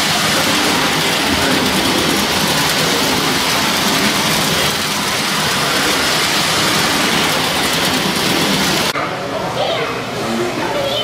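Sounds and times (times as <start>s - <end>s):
model trains rumbling whir: 0.0s - 11.0s.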